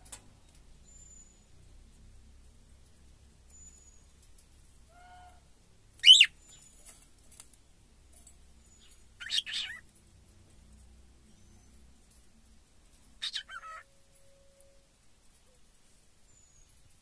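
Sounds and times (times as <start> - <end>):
cockatiel calling: 4.9 - 5.4, 6.0 - 6.3, 9.2 - 9.8, 13.2 - 13.9.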